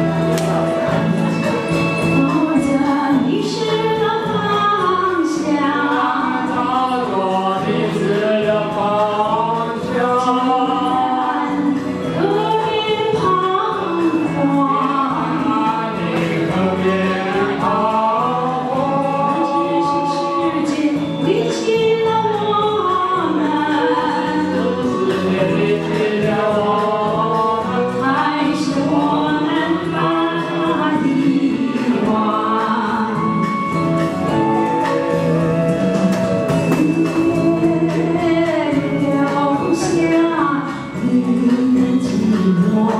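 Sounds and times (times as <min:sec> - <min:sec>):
recorded backing track: 0:00.0 - 0:42.9
woman and man singing duet: 0:01.3 - 0:42.9.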